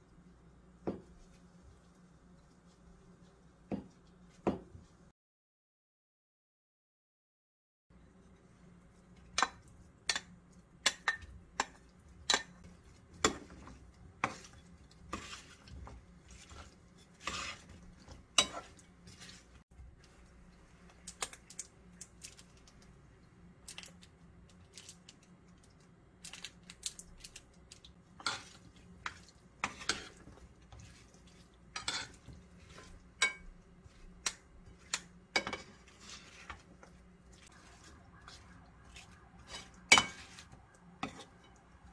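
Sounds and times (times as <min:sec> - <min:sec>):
utensils clinking in metal bowl: 0:28.2 - 0:41.7.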